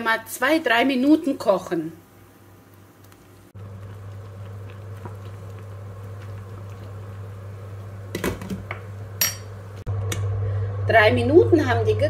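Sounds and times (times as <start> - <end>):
low constant hum: 0.0 - 12.0
water bubbling in a pot: 2.0 - 9.8
metal spoon clinking pot: 9.2 - 9.5.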